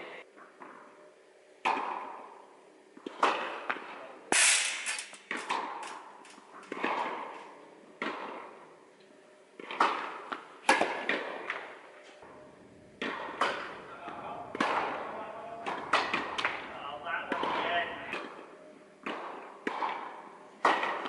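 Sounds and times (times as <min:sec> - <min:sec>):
tennis balls bouncing on court: 0:01.6 - 0:02.4, 0:03.0 - 0:03.9, 0:05.3 - 0:08.7, 0:09.6 - 0:11.7, 0:13.0 - 0:21.0
tennis balls struck by rackets: 0:01.6 - 0:08.8, 0:09.6 - 0:12.4, 0:13.0 - 0:21.0.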